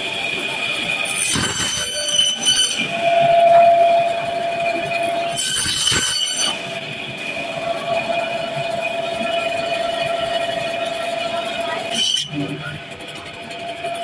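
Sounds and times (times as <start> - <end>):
band saw whining: 0.0 - 14.0
saw blade squealing through fish: 1.1 - 8.6, 11.7 - 12.5.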